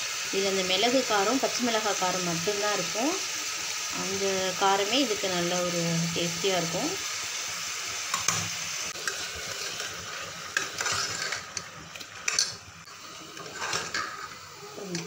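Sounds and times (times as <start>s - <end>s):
meat sizzling: 0.0s - 15.0s
metal spoon scraping pot: 9.0s - 12.6s, 13.3s - 14.4s.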